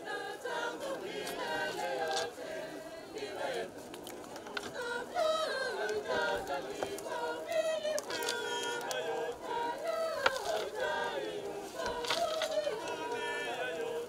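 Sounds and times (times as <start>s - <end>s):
group singing in chorus: 0.0s - 14.0s.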